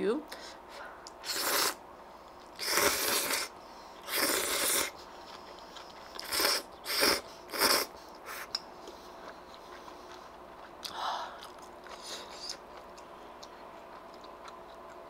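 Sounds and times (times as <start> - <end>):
noodles being slurped: 1.2 - 1.8, 2.6 - 8.5.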